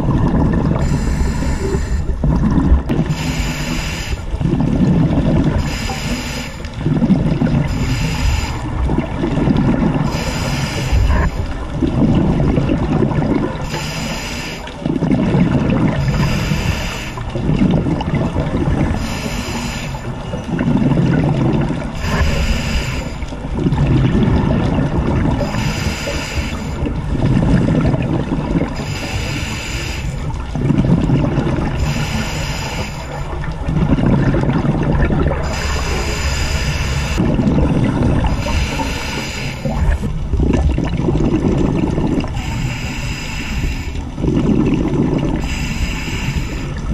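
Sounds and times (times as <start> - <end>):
exhaled bubbles gurgling: 0.0 - 46.9
regulator hissing inhale: 0.8 - 2.1, 3.1 - 4.3, 5.6 - 6.6, 7.6 - 8.8, 10.1 - 11.6, 13.6 - 14.8, 16.0 - 17.3, 18.9 - 20.1, 22.0 - 23.3, 25.4 - 26.9, 28.8 - 30.3, 31.8 - 33.3, 35.4 - 37.2, 38.3 - 39.9, 42.3 - 44.2, 45.4 - 46.9.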